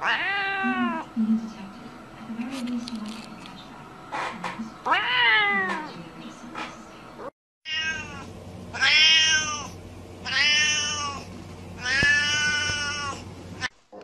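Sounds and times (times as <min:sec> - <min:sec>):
cat meowing: 0:00.0 - 0:01.0, 0:04.9 - 0:05.9, 0:07.7 - 0:11.2, 0:11.8 - 0:13.2.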